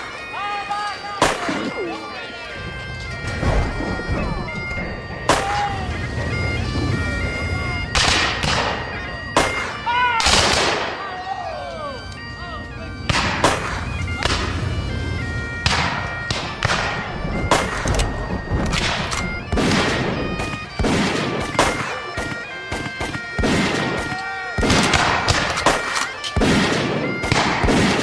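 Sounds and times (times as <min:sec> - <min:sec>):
sustained musical tones: 0:00.0 - 0:27.5
musket shots echoing: 0:01.2 - 0:01.8, 0:07.9 - 0:11.1, 0:13.1 - 0:14.6, 0:15.6 - 0:28.0.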